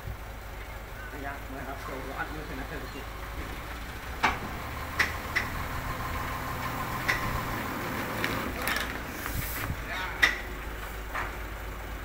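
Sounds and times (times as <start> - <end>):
truck engine running: 0.0 - 12.0
sharp knocks and clanks: 3.3 - 5.7, 6.6 - 9.1, 10.1 - 11.4.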